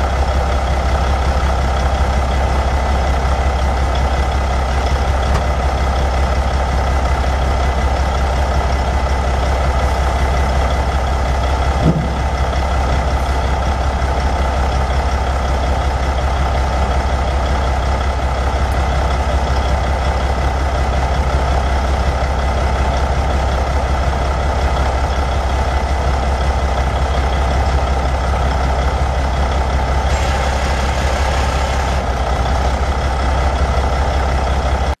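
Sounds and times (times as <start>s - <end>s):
diesel truck engine idling: 0.0s - 35.0s
brief knock: 11.8s - 12.3s.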